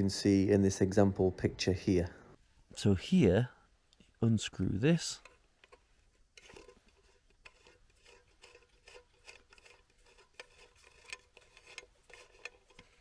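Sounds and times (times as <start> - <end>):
metal screw cap clicking and scraping: 5.0 - 13.0.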